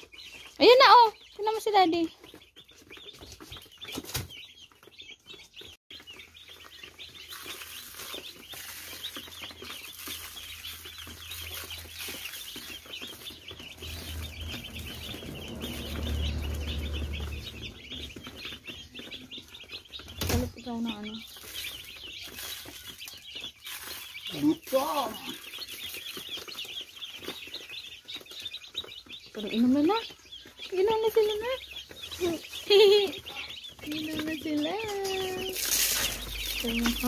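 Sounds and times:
chicks peeping: 0:00.0 - 0:37.0
low rumble: 0:13.6 - 0:18.8.

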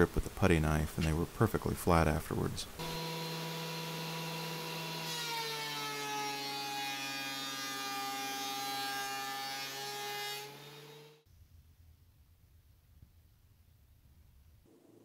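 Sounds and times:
thickness planer cutting wood: 0:02.8 - 0:11.2.

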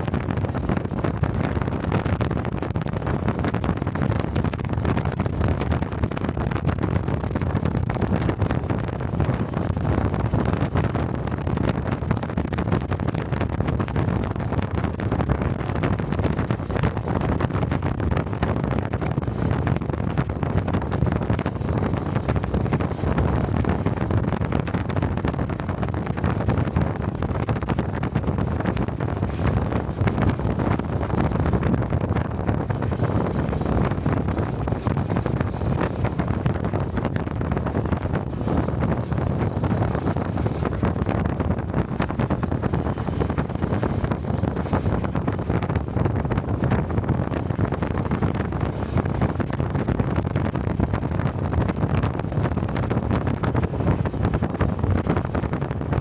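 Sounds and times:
wind rushing over microphone: 0:00.0 - 0:56.0
motorcycle engine running: 0:38.1 - 0:45.6.

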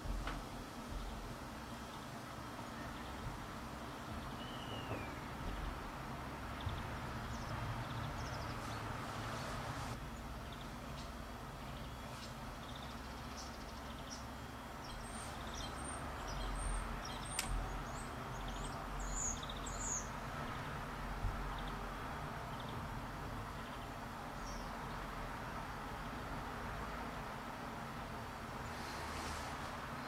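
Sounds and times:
songbirds chirping: 0:00.0 - 0:30.0
steady background hiss: 0:00.0 - 0:30.0
sharp click: 0:17.3 - 0:17.6.

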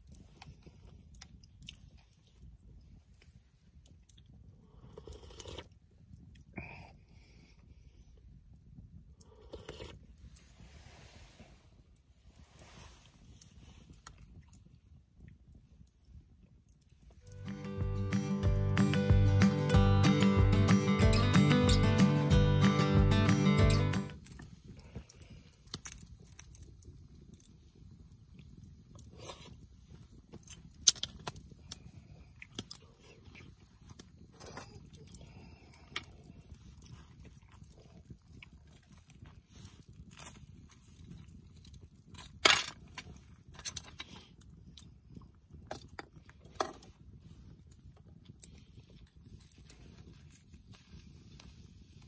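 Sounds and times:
quiet chewing: 0:00.0 - 0:10.6, 0:12.0 - 0:17.4, 0:24.1 - 0:52.0
acoustic guitar music: 0:17.2 - 0:24.2.

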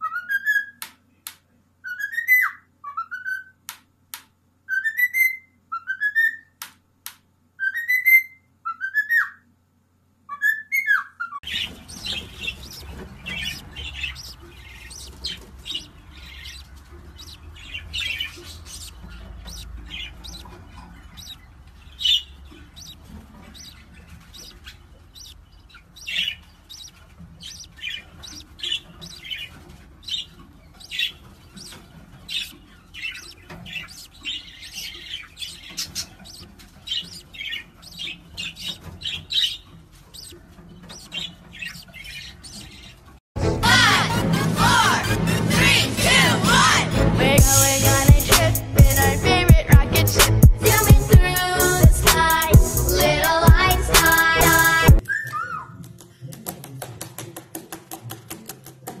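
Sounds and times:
budgerigars chirping: 0:07.6 - 0:09.4, 0:10.3 - 0:43.2, 0:47.4 - 0:55.0.

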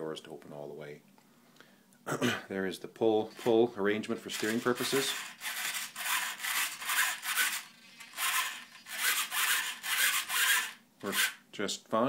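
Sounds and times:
servo mechanical strokes: 0:04.3 - 0:11.4.

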